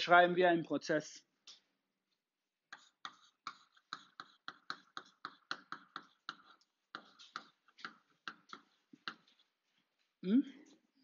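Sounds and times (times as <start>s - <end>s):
chalk tapping on blackboard: 2.7s - 9.6s.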